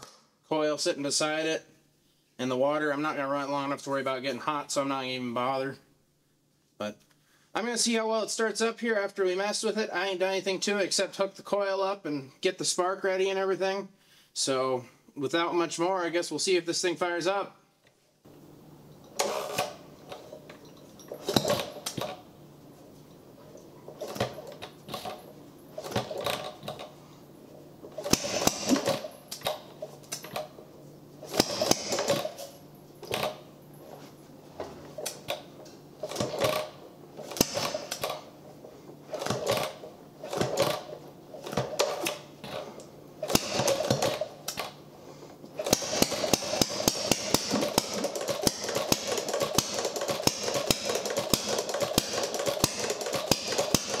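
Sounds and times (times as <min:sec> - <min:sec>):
gas engine mechanical clatter: 0:45.6 - 0:54.0.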